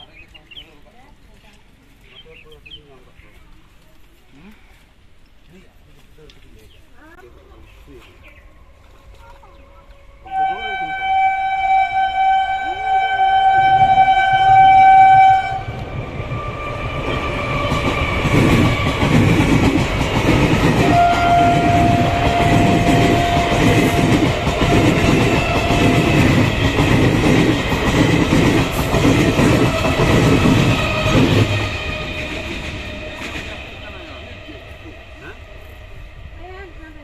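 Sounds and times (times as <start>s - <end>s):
train horn: 10.2s - 19.3s, 20.6s - 26.8s
train wheels clattering: 15.7s - 35.0s.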